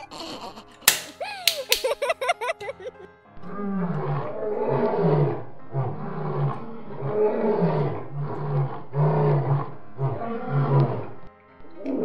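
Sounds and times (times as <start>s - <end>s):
lion roaring: 3.4s - 12.0s.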